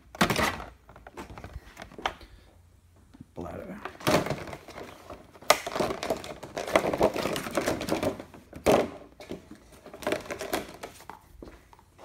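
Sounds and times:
plastic bag crinkling: 4.1s - 8.2s.

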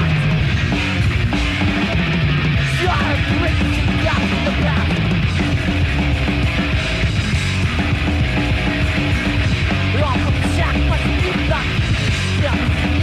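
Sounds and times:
death metal band playing: 0.0s - 13.0s.

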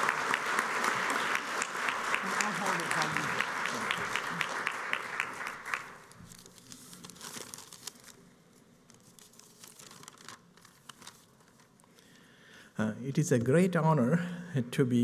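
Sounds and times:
audience applause: 0.0s - 6.1s.

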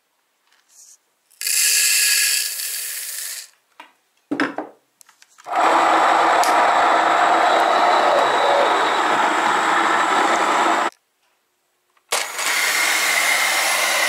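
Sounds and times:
grain mill grinding: 1.3s - 3.5s, 5.5s - 10.9s, 12.1s - 14.0s.

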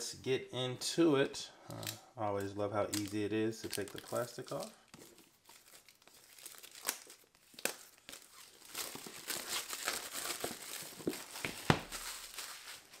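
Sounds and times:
plastic wrap crinkling: 2.8s - 13.0s.

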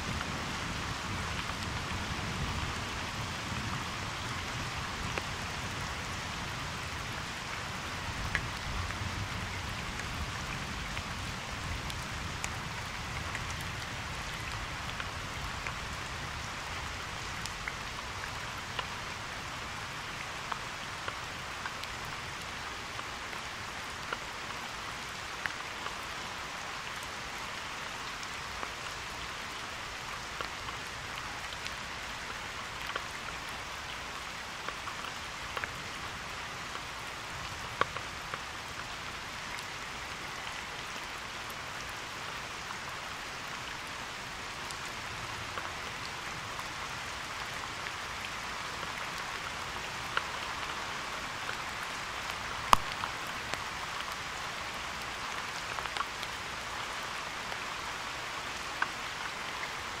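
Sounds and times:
raindrops tapping near microphone: 0.0s - 60.0s
steady rain: 0.0s - 60.0s.

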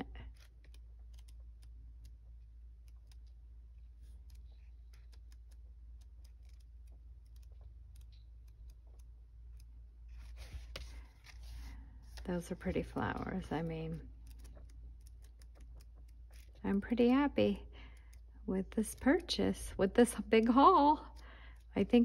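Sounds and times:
paper pages rustling: 10.1s - 13.5s, 14.2s - 16.6s.

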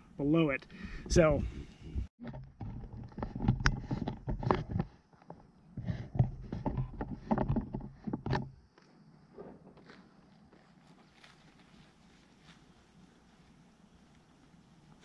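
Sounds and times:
footsteps swishing through long grass: 9.8s - 15.0s.

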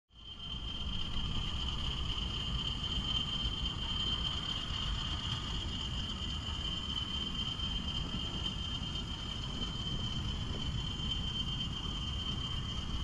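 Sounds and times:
high-pitched insect trill: 0.1s - 13.0s.

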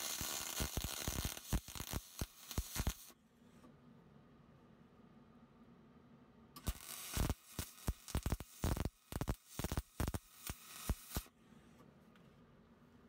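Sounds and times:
welding arc hissing and popping: 0.0s - 3.2s, 6.6s - 11.3s.

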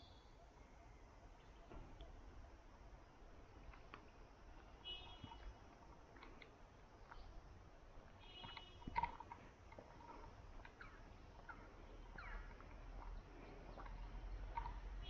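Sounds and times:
bird chirps and calls: 10.7s - 15.0s.

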